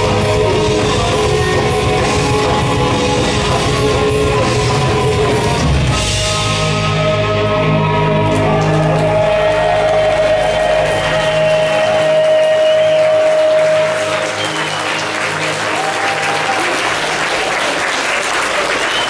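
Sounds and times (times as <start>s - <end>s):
low bass notes: 0.0s - 14.5s
audience applause: 7.8s - 19.0s.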